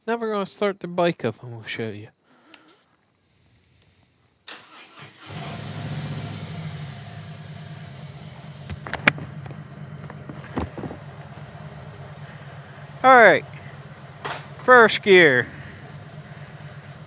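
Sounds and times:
electric starter cranking: 4.5s - 7.3s
motorcycle engine idling: 5.3s - 17.0s.

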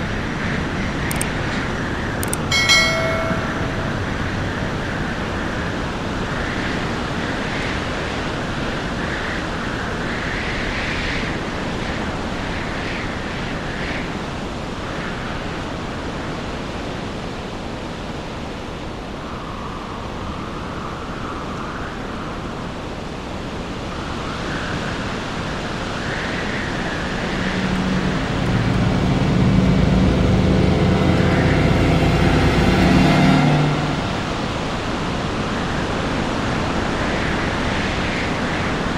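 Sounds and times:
low humming drone: 0.0s - 5.9s, 26.3s - 35.6s.

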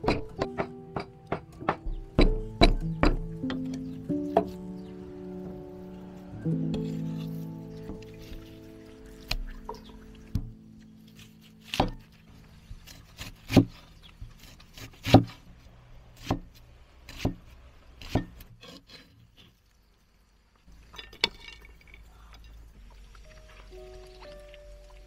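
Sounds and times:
cleaver knocking on wooden block: 0.0s - 3.6s.

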